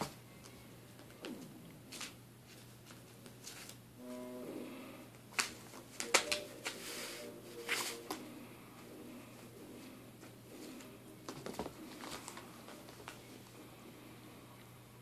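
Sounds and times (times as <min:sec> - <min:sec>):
paper rustling and crinkling: 0:01.9 - 0:03.8, 0:11.3 - 0:13.3.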